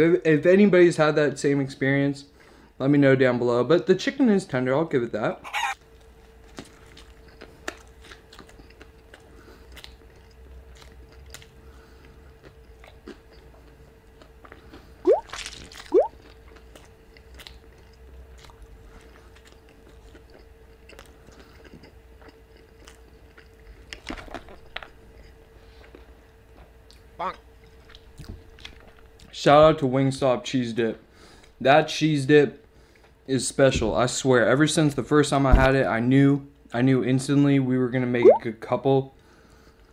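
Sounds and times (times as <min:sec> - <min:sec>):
biting and chewing sandwich: 0:05.9 - 0:29.3.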